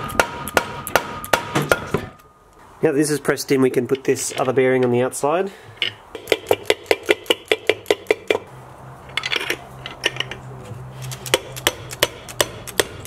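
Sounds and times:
mallet tapping metal: 0.0 - 2.3, 11.3 - 13.0.

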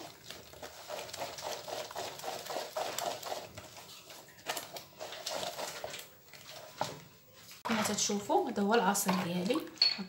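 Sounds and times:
spatula scraping pulp through sieve: 0.0 - 6.9.

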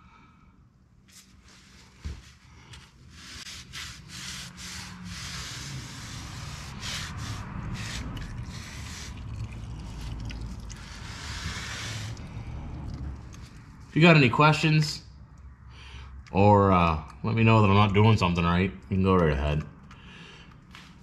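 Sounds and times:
oil trickling into bucket: 8.2 - 11.3.

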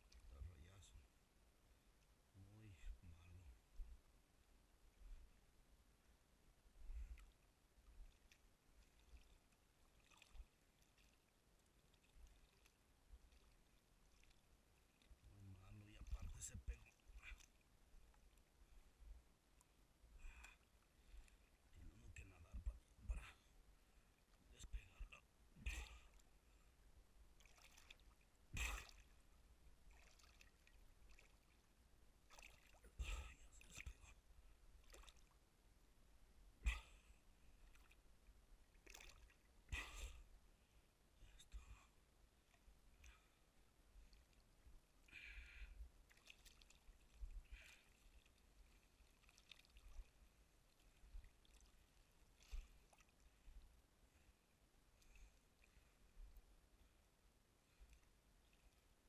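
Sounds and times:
river water lapping: 4.8 - 35.5, 36.5 - 40.8, 42.4 - 57.0
short sharp splashes: 8.1 - 15.1, 27.4 - 29.2, 29.9 - 34.0, 34.8 - 35.4, 38.7 - 40.1, 46.1 - 50.1.

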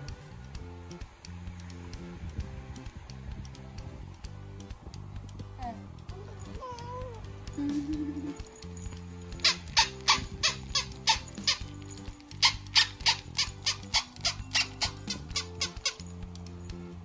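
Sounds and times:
background music: 0.0 - 17.0
plush toy squeaking: 9.3 - 16.1.

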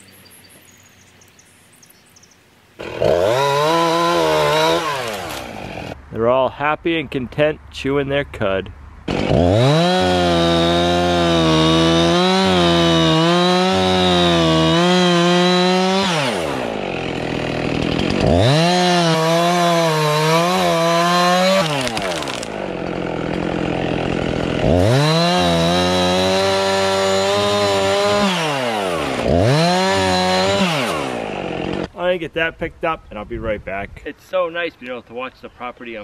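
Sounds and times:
chainsaw cutting wood: 2.8 - 6.0, 9.0 - 31.9.

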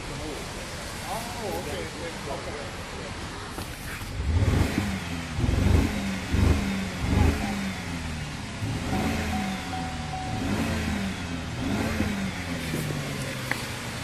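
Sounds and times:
car engine revving: 3.4 - 14.0.

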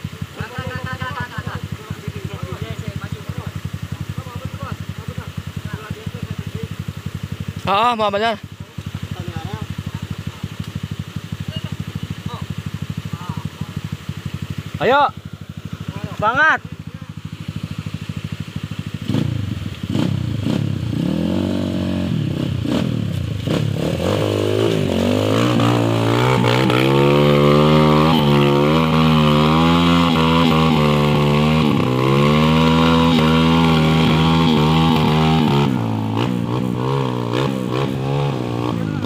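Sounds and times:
dirt bike engine revving: 0.0 - 39.0.

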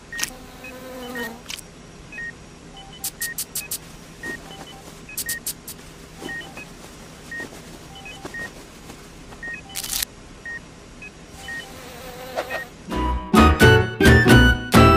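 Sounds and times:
short electronic beeps: 2.1 - 5.6, 6.2 - 6.7, 7.3 - 8.5, 11.4 - 11.7
tissue paper crinkling: 5.8 - 9.4.

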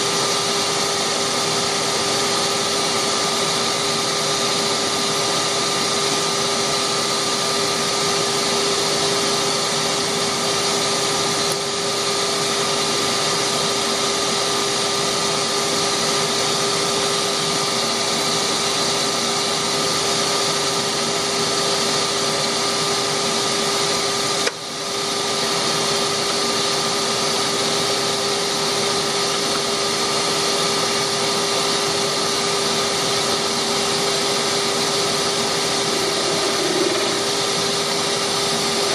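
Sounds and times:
wood lathe motor humming: 28.0 - 38.9.

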